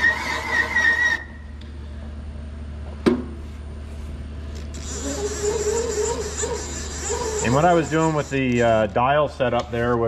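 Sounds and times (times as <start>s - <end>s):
cutter squeal: 0.0s - 1.4s, 4.8s - 8.7s
low steady machine hum: 0.0s - 10.0s.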